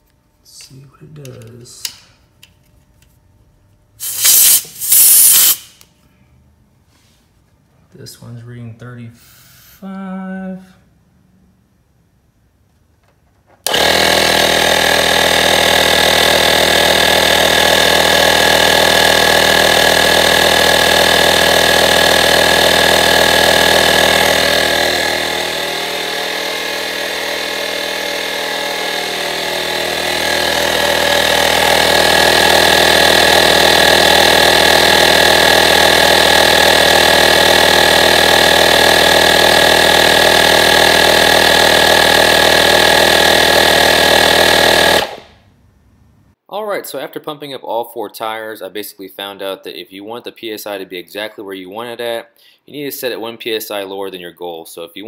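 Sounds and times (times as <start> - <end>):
tire inflator motor buzzing: 4.0 - 5.9, 13.6 - 45.4.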